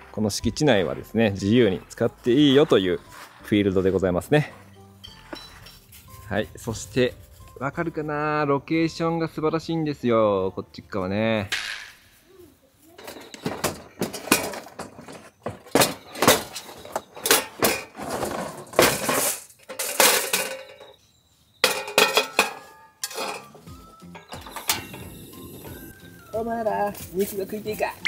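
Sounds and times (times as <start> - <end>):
cooking gear clinking and clattering: 4.2 - 6.2, 12.9 - 26.2.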